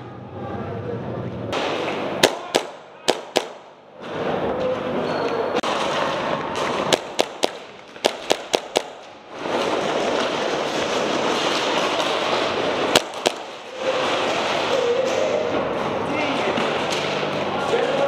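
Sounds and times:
airsoft gun shots: 0:01.6 - 0:03.8, 0:05.7 - 0:09.7, 0:11.4 - 0:14.6.

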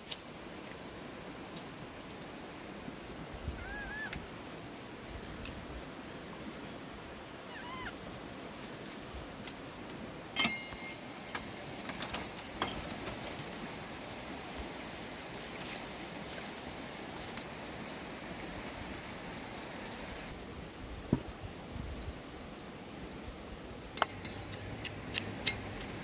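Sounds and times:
outdoor hiss: 0:00.0 - 0:26.0
baby monkey squeaking: 0:03.6 - 0:04.2, 0:07.5 - 0:08.0.

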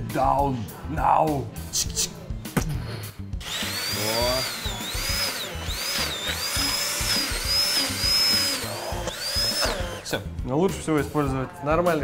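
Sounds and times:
hand blender motor whine: 0:03.4 - 0:10.1.

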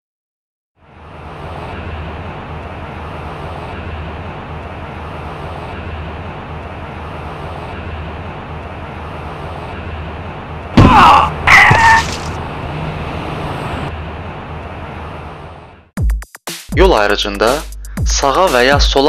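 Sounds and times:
street traffic: 0:00.8 - 0:16.0.

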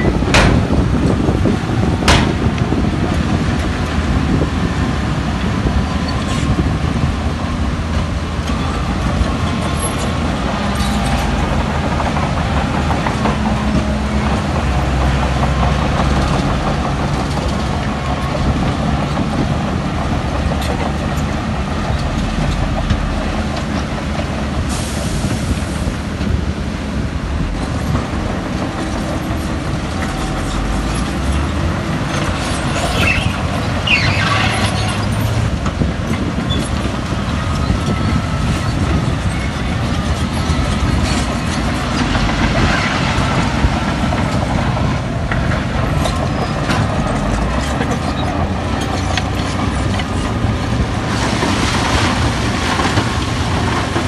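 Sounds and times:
diesel engine of heavy machinery: 0:00.0 - 0:54.0
high metallic squeaks: 0:32.1 - 0:35.4.

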